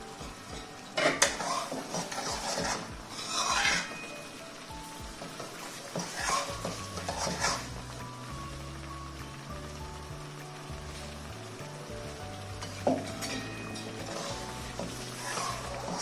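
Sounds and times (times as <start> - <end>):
spoon stirring and scraping pan: 0.2 - 4.2, 5.2 - 7.8, 12.6 - 16.0.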